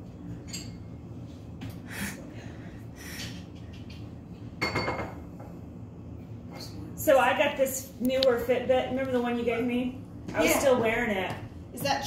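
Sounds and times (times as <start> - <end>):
tableware clinking: 0.4 - 1.0, 4.6 - 5.2.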